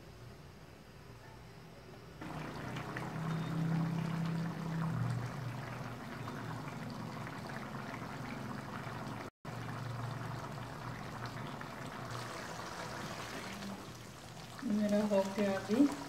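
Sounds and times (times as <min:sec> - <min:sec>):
low hum: 0:02.2 - 0:13.9
gravy boiling in a pan: 0:02.2 - 0:16.0.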